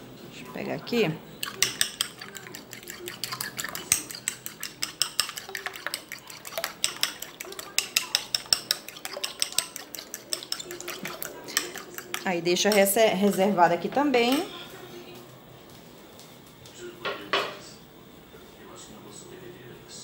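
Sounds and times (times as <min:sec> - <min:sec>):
fork clinking against ceramic bowl: 0:01.4 - 0:13.5.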